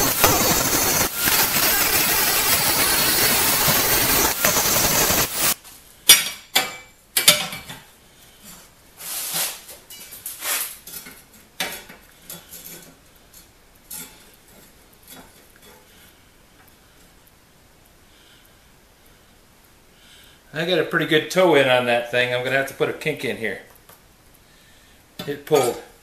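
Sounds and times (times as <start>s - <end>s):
angle grinder grinding steel: 0.0s - 5.6s.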